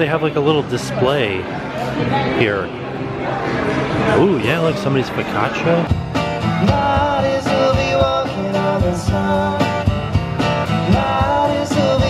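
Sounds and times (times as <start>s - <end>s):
strummed acoustic guitar: 4.3s - 12.0s
drum kit beat: 5.9s - 12.0s.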